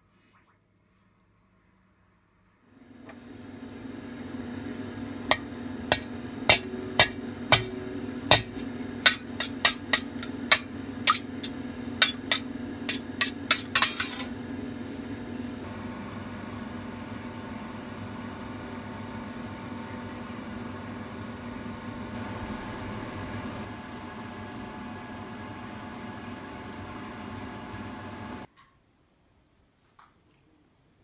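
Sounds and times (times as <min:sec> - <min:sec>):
steady low hum: 0:02.8 - 0:28.5
utensil clinking metal bowl: 0:05.3 - 0:14.3.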